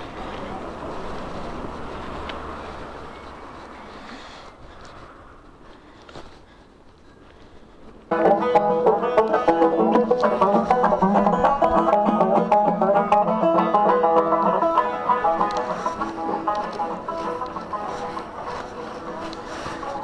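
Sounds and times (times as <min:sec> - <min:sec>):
fast-picked string music: 0:08.1 - 0:20.0.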